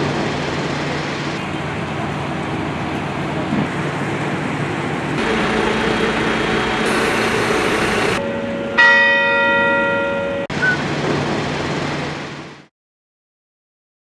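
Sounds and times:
street traffic noise: 0.0s - 12.7s
church bell strike ringing: 5.2s - 10.5s.

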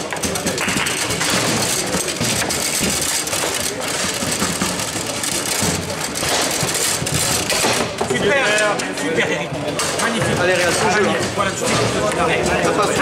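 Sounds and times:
ball knocking against figures: 0.0s - 8.5s
table football rods rattling: 0.0s - 13.0s.

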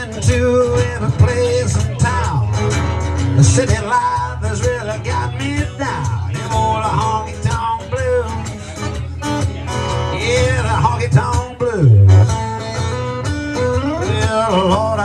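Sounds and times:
man singing: 0.0s - 12.4s, 13.6s - 15.0s
strummed guitar: 0.0s - 15.0s.

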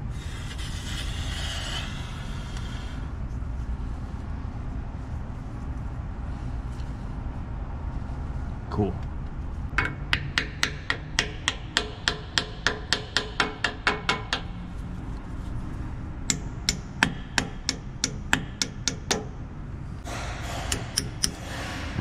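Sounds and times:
hammer tapping metal: 9.7s - 14.5s, 16.3s - 19.4s, 20.0s - 21.6s.

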